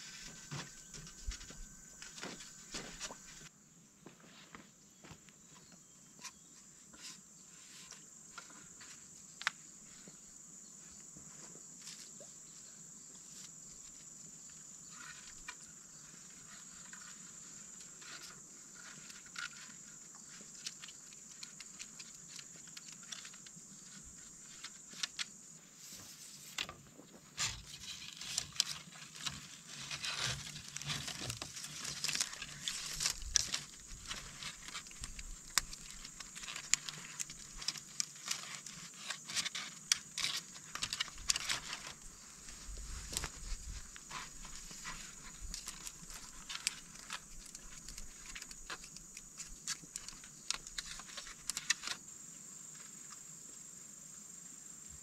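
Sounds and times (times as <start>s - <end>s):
tie rustling and crackling: 27.8s - 52.0s.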